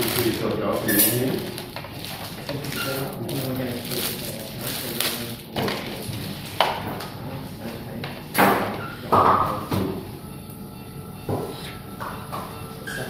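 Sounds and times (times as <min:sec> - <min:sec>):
plastic packs crinkling: 0:00.0 - 0:06.6.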